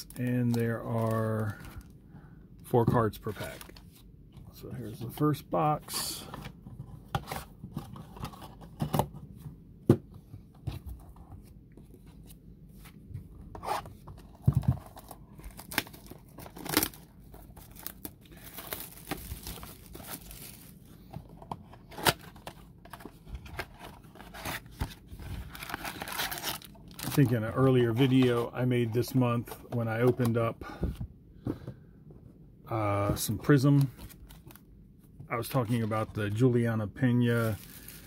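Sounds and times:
plastic wrap tearing and crinkling: 15.0 - 20.8, 25.3 - 27.3, 37.4 - 38.0.

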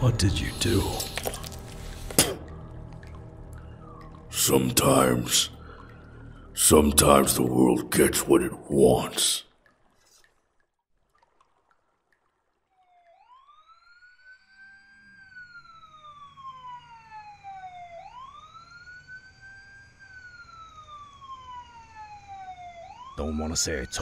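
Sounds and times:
police siren wailing: 0.0 - 9.4, 12.7 - 24.0
low steady hum: 0.0 - 9.6.

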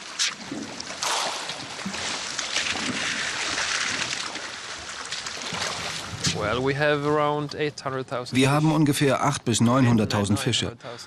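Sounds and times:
water splashing and sloshing: 0.0 - 8.3.

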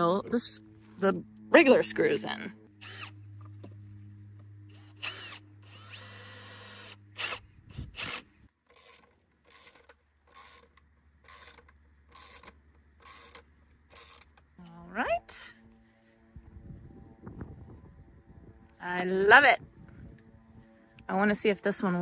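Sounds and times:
cordless drill driving screws: 2.8 - 3.2, 4.8 - 14.4.

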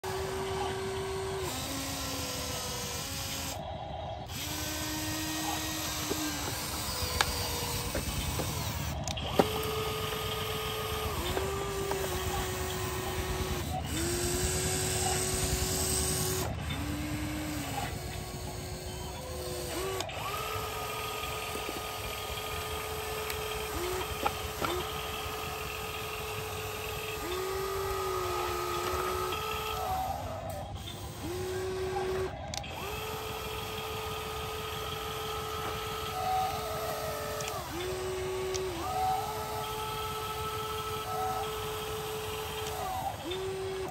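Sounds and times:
toy electric motors whirring: 0.0 - 43.9.

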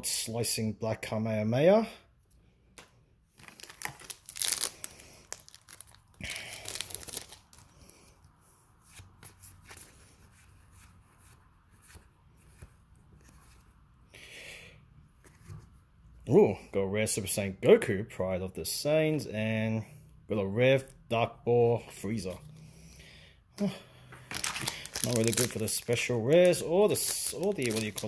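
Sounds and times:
foil wrapper tearing and crinkling: 3.4 - 7.8, 24.3 - 28.0.

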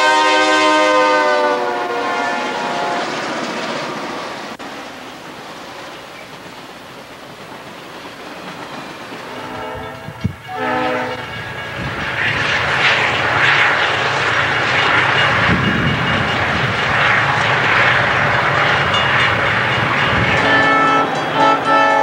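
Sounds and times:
locomotive horn: 0.0 - 3.2, 9.2 - 11.4, 20.1 - 22.0
freight train rumbling: 0.0 - 22.0
wheels clattering on rails: 3.2 - 22.0.

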